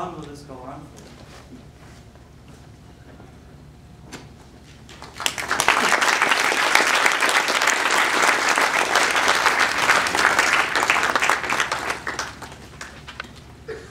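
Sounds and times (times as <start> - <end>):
audience applause: 4.9 - 13.3.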